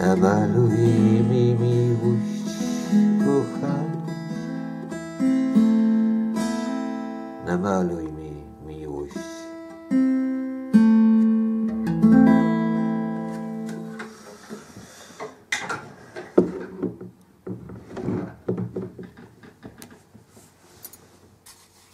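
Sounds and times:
acoustic guitar chord ringing: 0.0s - 14.2s
guitar being set down: 13.2s - 20.3s.

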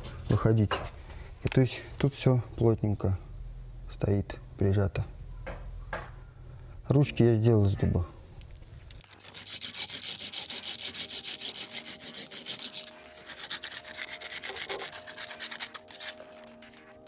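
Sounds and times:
metal blade scraping brick joint: 9.3s - 16.2s.

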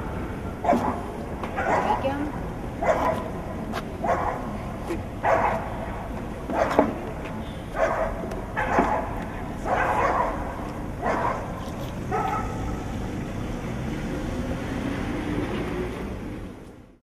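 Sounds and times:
dog barking: 0.6s - 2.1s, 2.8s - 3.4s, 4.0s - 4.6s, 5.2s - 5.8s, 6.5s - 6.9s, 7.8s - 12.7s.

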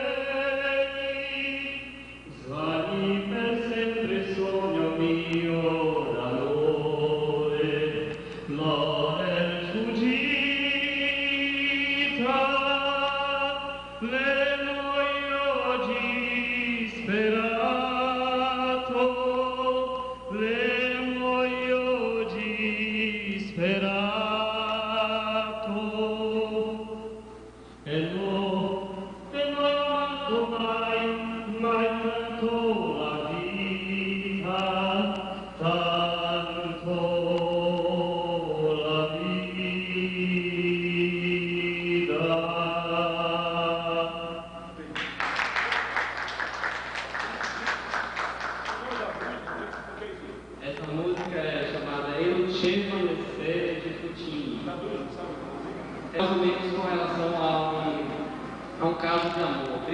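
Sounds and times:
man singing into microphone: 0.0s - 44.8s.

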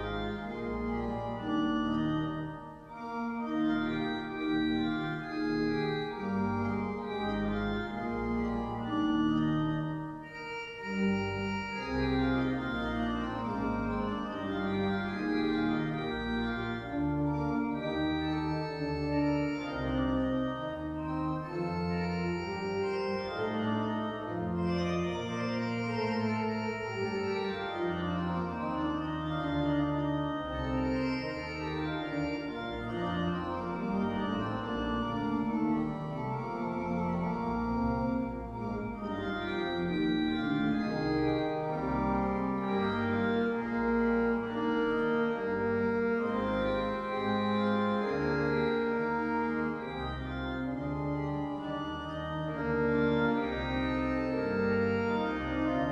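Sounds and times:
church pipe organ chords: 0.0s - 55.9s.

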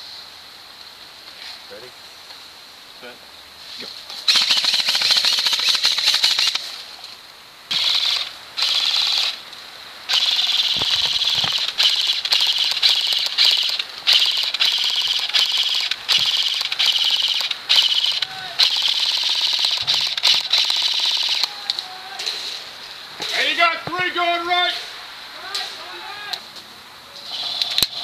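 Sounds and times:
airsoft guns firing full auto: 4.3s - 6.7s, 7.7s - 9.4s, 10.1s - 21.6s.

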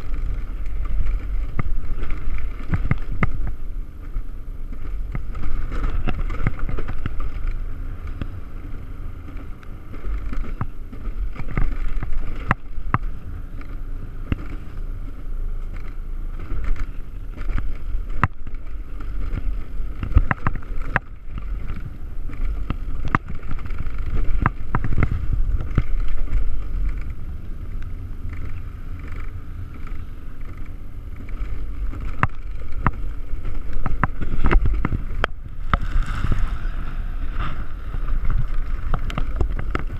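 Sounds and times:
steady high whir: 0.0s - 39.9s
wheels rumbling on steel rail: 0.0s - 39.9s.

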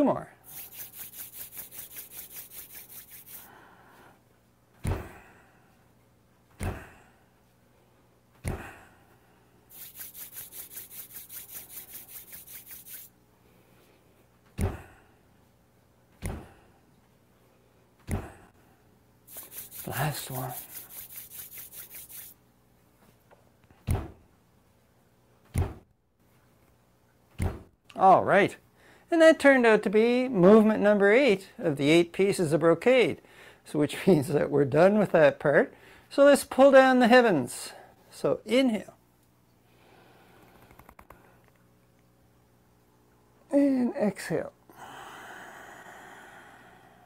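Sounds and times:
palms rubbing together: 0.4s - 3.5s, 9.7s - 13.1s, 19.3s - 22.4s
dull heavy thumps: 18.0s - 18.4s, 23.8s - 24.2s.

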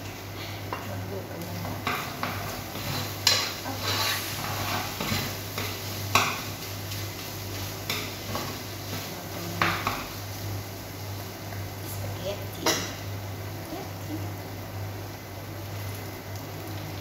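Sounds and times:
fork scraping metal pot: 2.7s - 5.3s.

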